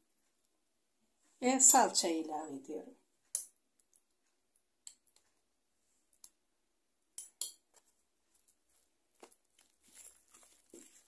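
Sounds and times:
spoon tapping glass bowl: 7.2s - 7.7s.

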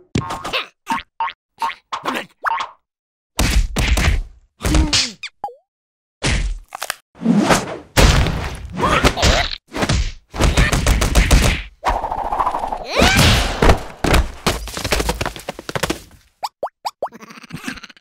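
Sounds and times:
cartoon thumps and whacks: 3.4s - 5.2s, 6.2s - 6.6s, 7.4s - 12.1s, 12.7s - 14.5s.

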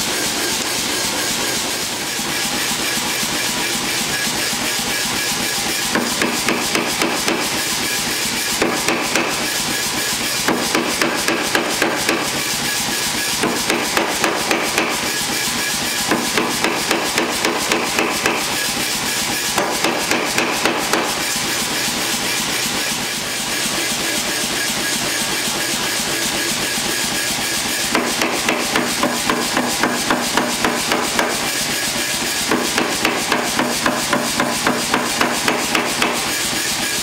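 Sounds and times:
hammer striking hot steel on anvil: 5.1s - 22.4s, 26.0s - 37.0s.

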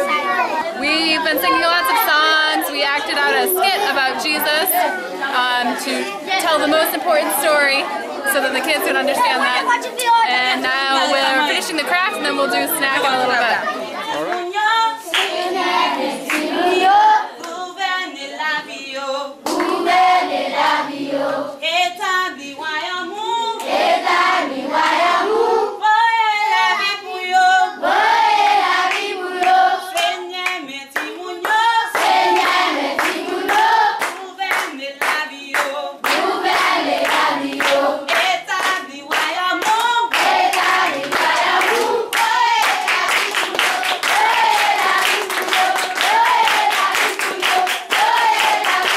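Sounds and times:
children singing: 0.0s - 21.6s, 22.5s - 34.4s, 36.0s - 48.9s
hands clapping: 14.1s - 14.5s, 15.1s - 15.4s, 19.4s - 19.8s, 28.9s - 48.9s.

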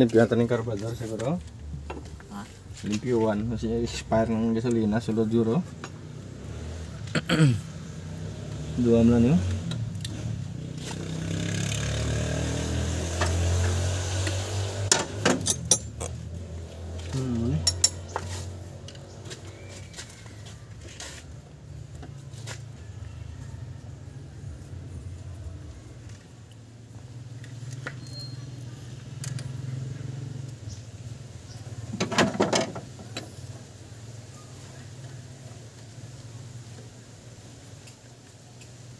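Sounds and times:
tools clinking on engine parts: 14.9s - 16.2s, 17.0s - 19.1s.

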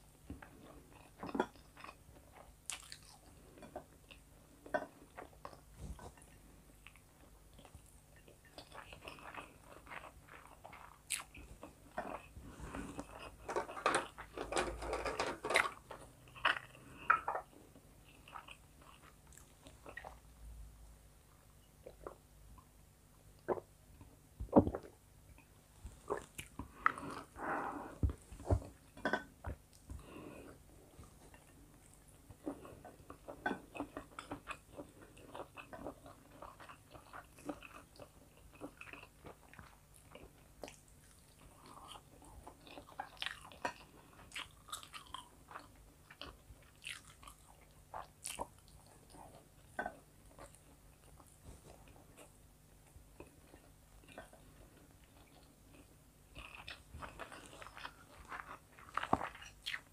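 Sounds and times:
chewing and lip smacking: 1.0s - 3.4s, 4.1s - 12.3s, 31.2s - 52.4s, 53.2s - 59.9s.

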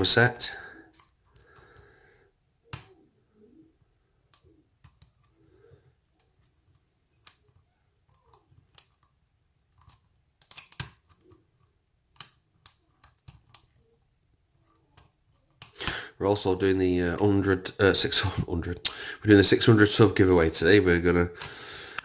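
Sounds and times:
lock pick clicking and scraping: 9.7s - 11.4s.

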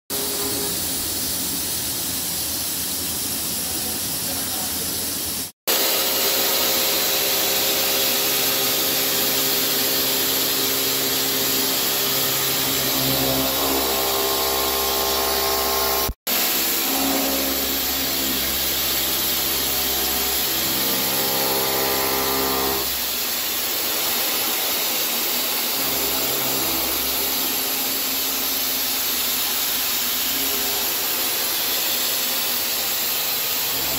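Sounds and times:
milling machine cutting steel: 0.1s - 1.2s, 5.7s - 33.9s.

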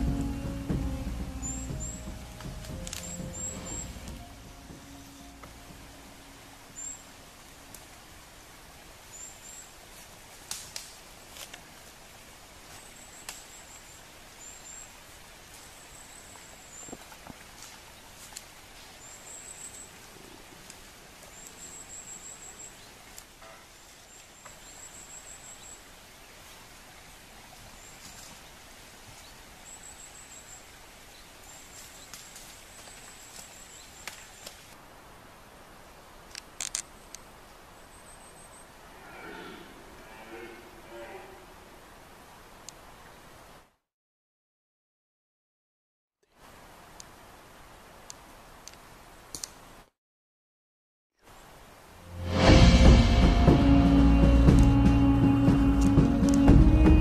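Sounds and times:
clicks and snaps in undergrowth: 2.4s - 3.2s, 10.4s - 12.0s, 13.2s - 13.5s, 16.9s - 18.6s, 31.7s - 34.8s, 36.2s - 37.3s, 48.1s - 49.6s.

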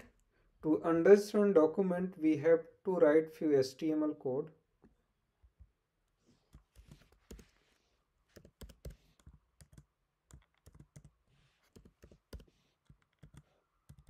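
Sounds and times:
keyboard typing: 6.5s - 7.6s, 8.3s - 14.0s.

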